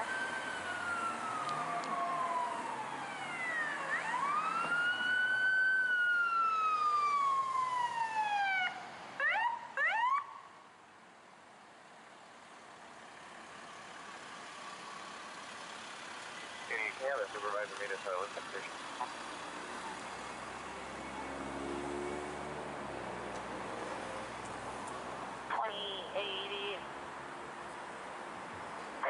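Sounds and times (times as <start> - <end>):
emergency vehicle siren wailing: 0.0 - 10.6, 13.9 - 24.4
traffic and engine noise: 0.0 - 29.0.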